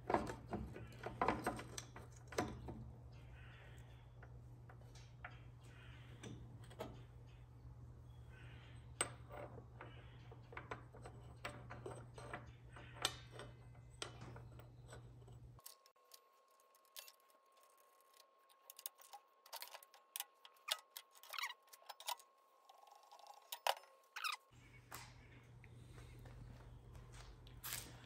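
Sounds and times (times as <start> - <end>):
steady low hum: 22.3 - 28.0.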